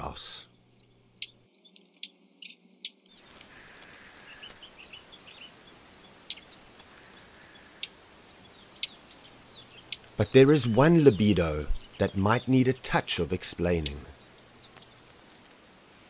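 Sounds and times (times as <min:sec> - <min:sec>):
birds chirping: 0:00.0 - 0:16.0
soft hiss: 0:02.8 - 0:16.0.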